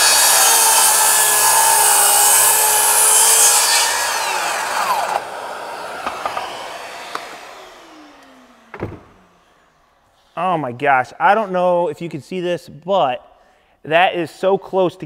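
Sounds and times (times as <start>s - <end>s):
circular saw cutting wood: 0.0s - 10.0s
saw motor winding down: 0.0s - 10.0s.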